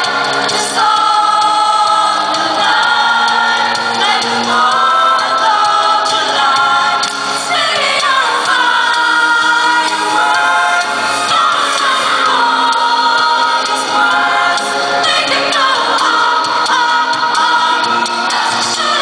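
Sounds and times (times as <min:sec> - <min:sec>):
mixed choir singing in harmony: 0:00.0 - 0:19.0.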